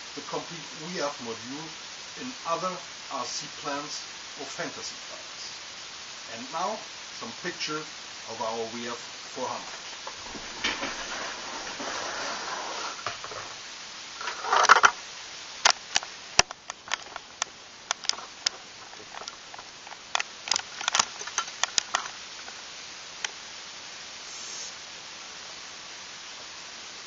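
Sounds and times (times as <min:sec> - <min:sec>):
steady hiss: 0:00.0 - 0:27.0
scraping rustle: 0:08.8 - 0:15.0, 0:15.8 - 0:22.6
sharp clicks and crackles: 0:14.2 - 0:15.0, 0:15.6 - 0:22.6, 0:23.2 - 0:23.4.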